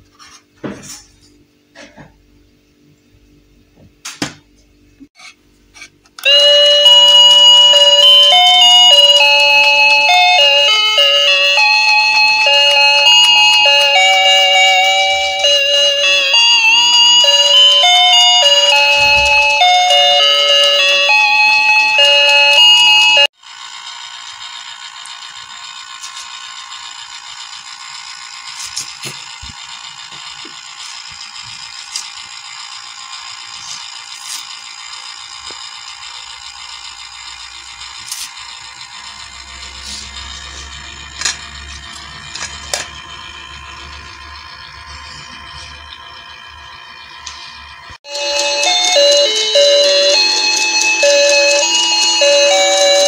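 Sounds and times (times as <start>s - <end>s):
electronic chime tune: 6.2s - 23.3s, 48.1s - 53.0s.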